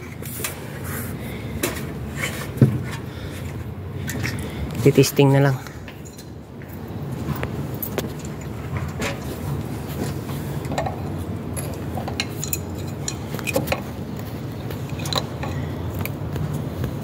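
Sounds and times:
wrench clinking on metal: 10.7s - 13.9s, 14.8s - 15.7s.

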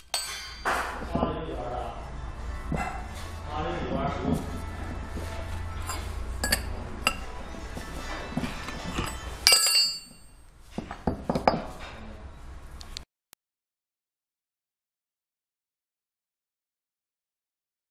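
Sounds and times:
steel parts clinking and knocking: 0.0s - 0.8s, 5.8s - 7.3s, 8.0s - 12.0s
loud metal clang: 8.6s - 10.4s.

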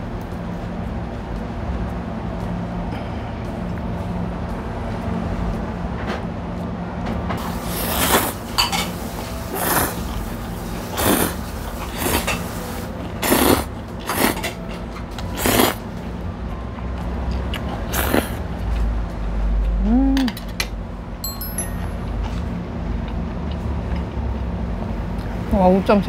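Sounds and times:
steady low hum: 0.0s - 12.0s
loud noodle slurps: 7.6s - 8.5s, 9.5s - 10.2s, 10.8s - 12.4s, 13.2s - 14.5s, 15.3s - 15.8s, 17.9s - 18.4s.

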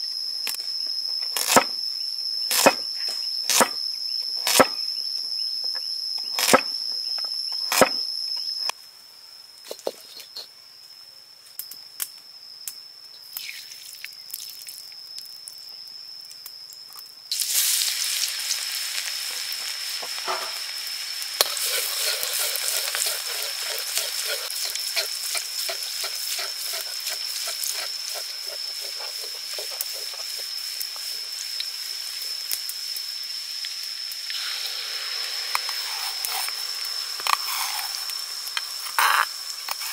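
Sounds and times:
cleaver chopping on wooden board: 7.7s - 8.0s
hot oil sizzling in a wok: 17.2s - 39.9s.

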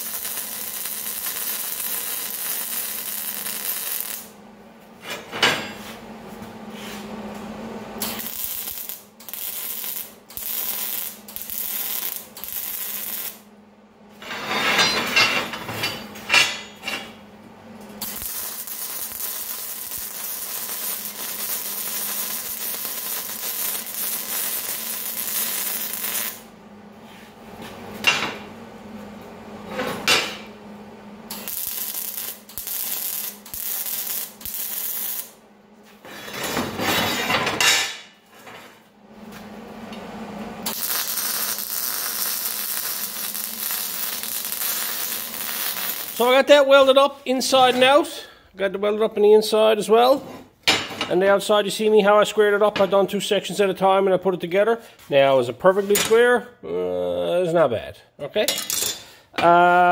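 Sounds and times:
welder arc crackling: 0.0s - 4.4s, 8.0s - 13.5s, 17.8s - 26.5s, 31.3s - 35.4s, 40.6s - 47.8s.

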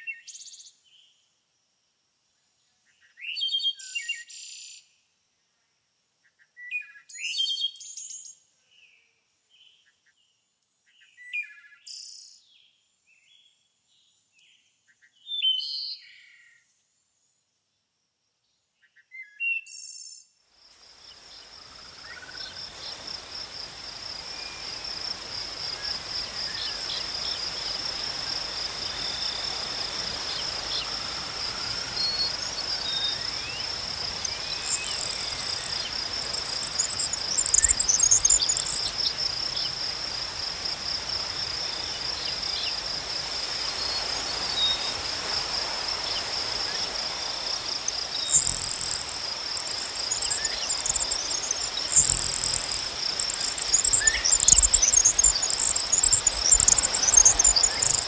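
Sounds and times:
insects trilling: 20.6s - 58.0s
bird chirps: 25.7s - 39.8s, 47.8s - 58.0s.

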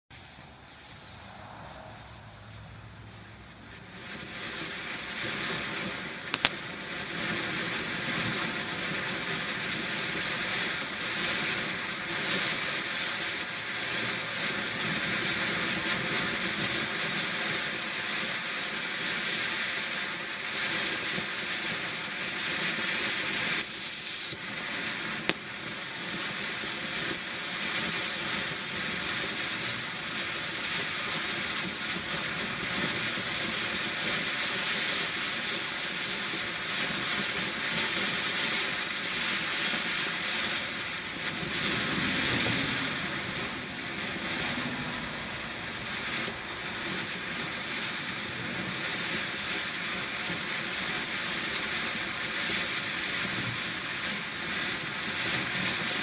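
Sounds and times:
firework fountain hissing: 0.1s - 56.0s
firework whistle falling in pitch: 23.6s - 25.4s.

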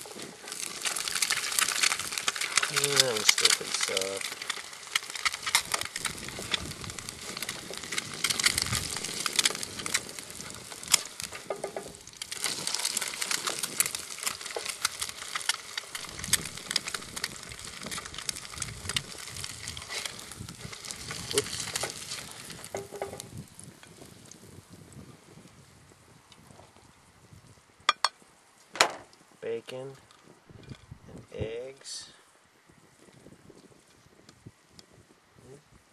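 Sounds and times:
eggs sizzling in a pan: 0.0s - 24.8s.

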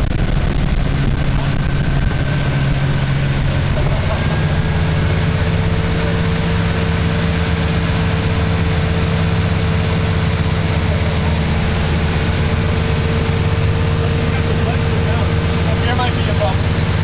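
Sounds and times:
motorboat engine running: 0.0s - 17.0s
rushing water: 0.0s - 17.0s
wind: 0.0s - 17.0s.

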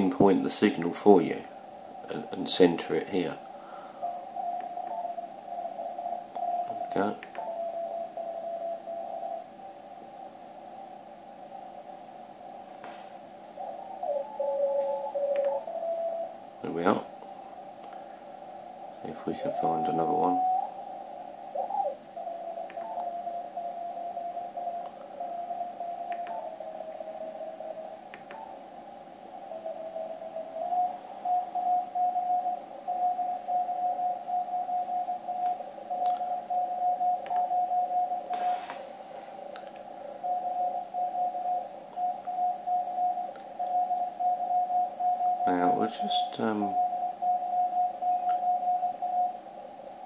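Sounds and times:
radio band hiss: 0.0s - 7.7s, 16.6s - 22.2s, 30.7s - 50.0s.

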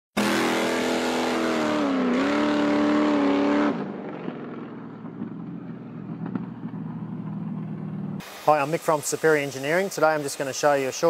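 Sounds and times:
buggy engine revving high: 0.2s - 5.6s.

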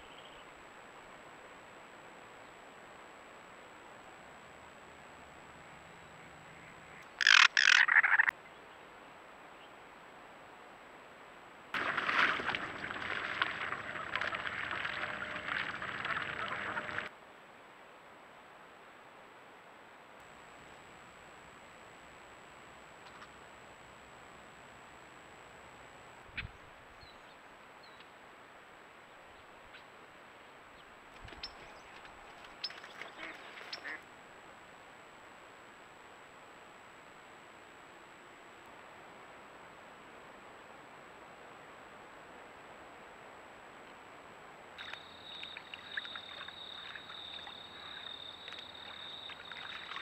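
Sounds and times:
steady background hiss: 0.0s - 50.0s
ducks quacking: 7.2s - 8.3s, 11.8s - 17.1s, 33.0s - 34.0s
ducks splashing in water: 11.8s - 17.1s, 31.1s - 34.0s, 44.8s - 50.0s.

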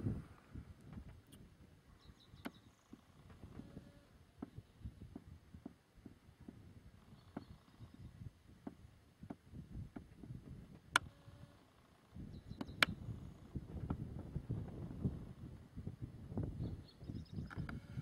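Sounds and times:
wind rumbling on microphone: 0.0s - 18.0s
sharp clicks: 10.9s - 11.2s, 12.6s - 13.0s.

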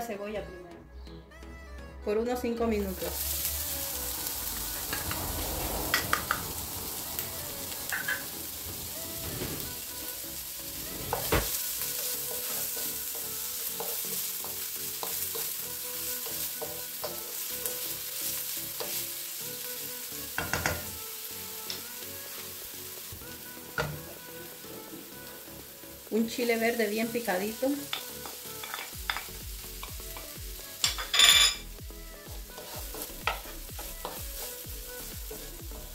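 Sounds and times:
onion sizzling in oil: 2.8s - 35.9s.

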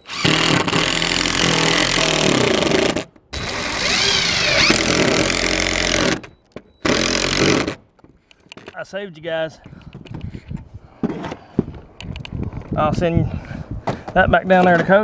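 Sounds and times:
impact driver driving screw: 0.0s - 7.8s.

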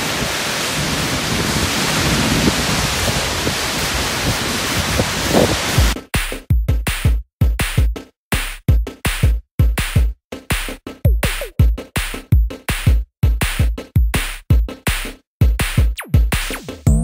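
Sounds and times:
deep kick drum: 5.8s - 17.0s
electronic music with drum machine: 5.8s - 17.0s.

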